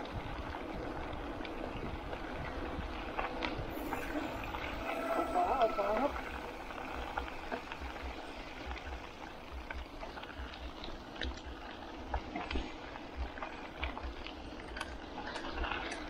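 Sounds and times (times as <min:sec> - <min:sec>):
bike tyres crackling on dirt: 0:00.0 - 0:05.5, 0:06.1 - 0:16.0
wind buffeting microphone: 0:00.0 - 0:11.7.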